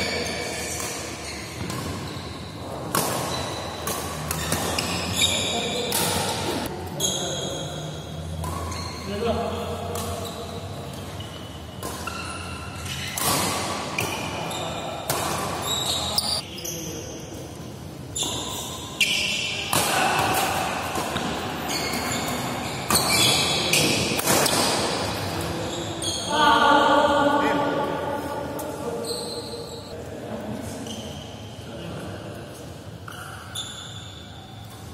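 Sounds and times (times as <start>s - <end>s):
shoes squeaking on court: 0.0s - 9.3s, 9.9s - 17.4s, 21.2s - 24.6s, 28.9s - 30.0s, 33.0s - 34.9s
racket striking shuttlecock: 5.8s - 6.7s.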